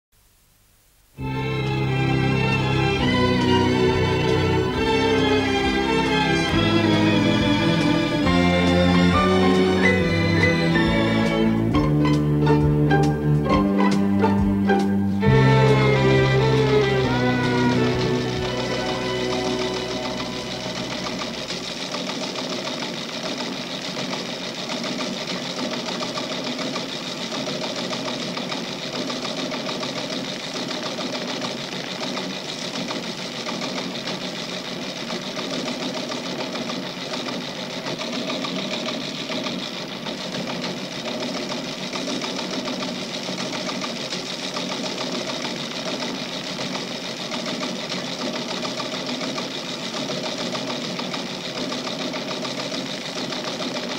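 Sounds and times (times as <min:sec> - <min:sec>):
teleprinter clattering: 0:14.7 - 0:53.9.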